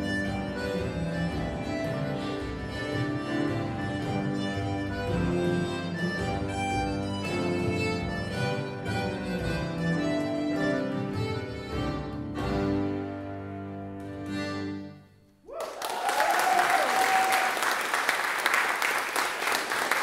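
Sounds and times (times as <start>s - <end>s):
accordion cello and piano playing: 0.0s - 15.1s
audience applause: 15.5s - 20.0s.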